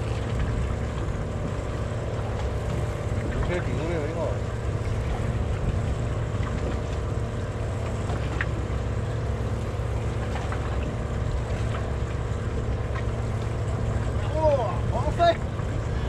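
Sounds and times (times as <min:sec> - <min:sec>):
wind buffeting microphone: 0:00.0 - 0:08.0
boat engine droning: 0:00.0 - 0:16.0.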